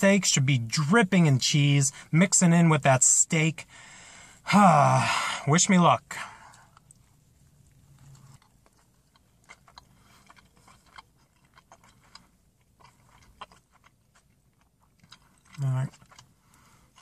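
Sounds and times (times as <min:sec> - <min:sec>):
faint chewing: 0:06.3 - 0:17.0.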